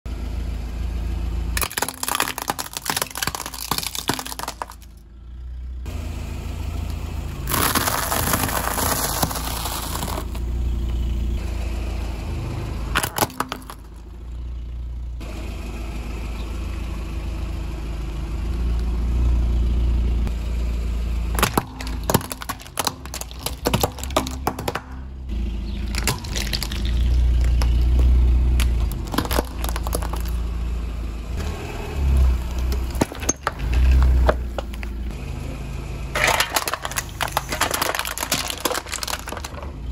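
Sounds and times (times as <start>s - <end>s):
car engine running low: 0.1s - 39.9s
tyres crushing objects: 1.6s - 5.0s, 7.5s - 10.5s, 12.9s - 14.1s, 21.3s - 30.6s, 32.4s - 35.1s, 36.2s - 39.9s.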